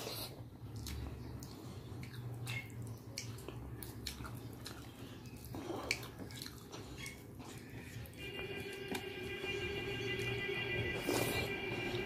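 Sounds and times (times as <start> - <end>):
chewing: 0.0 - 9.0
low steady hum: 0.0 - 12.0.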